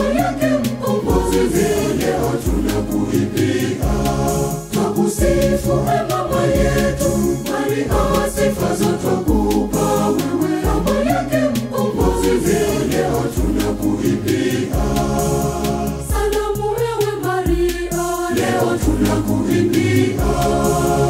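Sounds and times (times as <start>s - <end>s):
choir singing a hymn: 0.0s - 21.0s
steady percussion beat: 0.0s - 21.0s
deep bass line: 1.0s - 11.1s, 12.0s - 16.3s.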